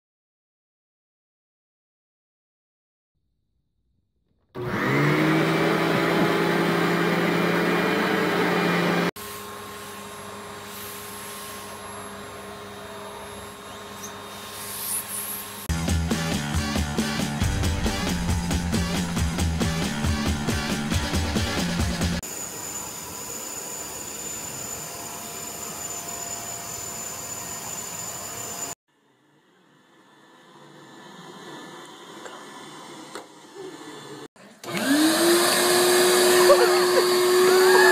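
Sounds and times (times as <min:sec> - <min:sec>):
vacuum cleaner motor whining: 0:04.6 - 0:15.6, 0:22.3 - 0:28.7, 0:29.8 - 0:37.9
canister vacuum running quietly: 0:29.5 - 0:37.9.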